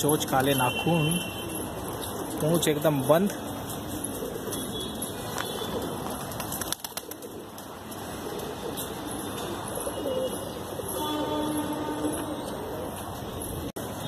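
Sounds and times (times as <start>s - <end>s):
pigeons cooing: 1.4s - 13.7s
wings fluttering: 5.4s - 8.8s.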